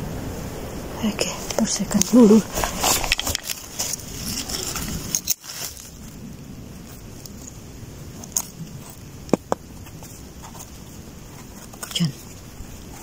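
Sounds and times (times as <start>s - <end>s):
dry leaves crackling: 0.9s - 13.0s
knife scraping mushroom stem: 8.2s - 13.0s.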